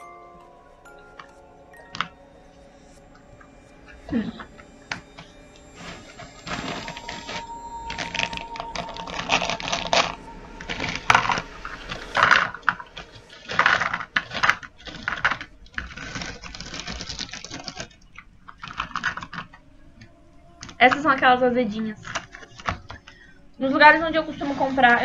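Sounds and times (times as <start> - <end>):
plastic bag crackling: 12.2 - 19.6.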